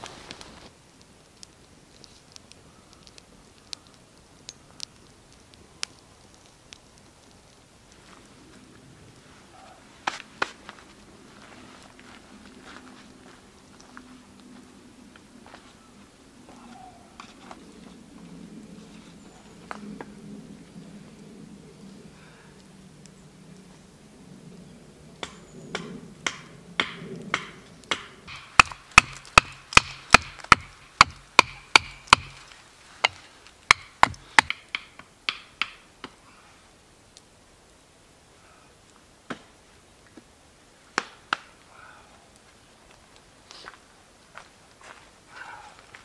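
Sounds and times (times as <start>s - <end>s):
hatchet chopping wood: 25.2s - 32.4s, 33.0s - 36.2s.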